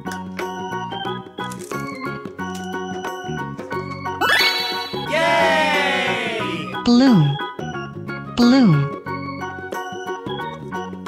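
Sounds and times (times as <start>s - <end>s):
light background music: 0.0s - 11.0s
person cheering yay: 5.0s - 6.8s.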